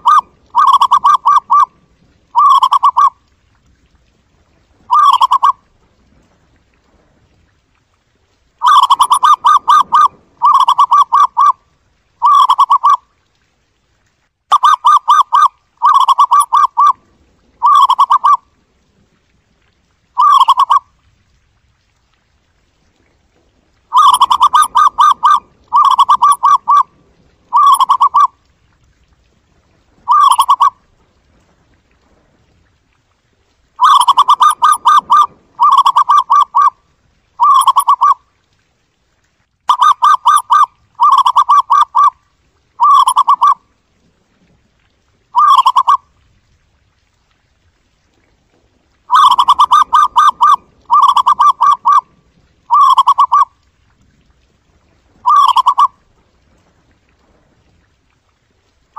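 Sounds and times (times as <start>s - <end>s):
dove cooing: 0.0s - 1.7s, 2.3s - 3.1s, 4.9s - 5.6s, 8.6s - 11.6s, 12.2s - 13.0s, 14.6s - 17.0s, 17.6s - 18.4s, 20.2s - 20.8s, 23.9s - 26.9s, 27.5s - 28.3s, 30.1s - 30.8s, 33.8s - 36.7s, 37.4s - 38.2s, 39.7s - 42.1s, 42.8s - 43.6s, 45.4s - 46.0s, 49.1s - 52.1s, 52.7s - 53.5s, 55.2s - 55.9s.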